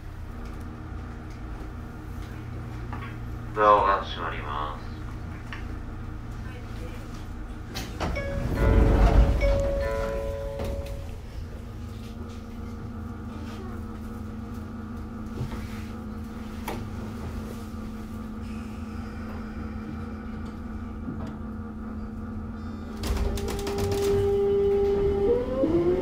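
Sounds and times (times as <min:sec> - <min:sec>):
low rumble: 0:00.0 - 0:15.4.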